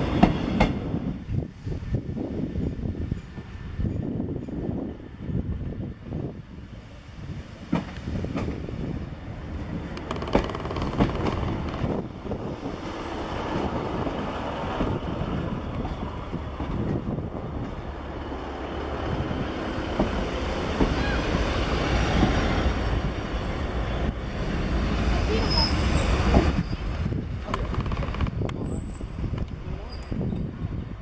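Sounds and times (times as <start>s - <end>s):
diesel train engines running: 0.0s - 31.0s
train wheels clicking over rail joints: 9.6s - 18.1s, 19.1s - 21.1s, 25.4s - 30.5s.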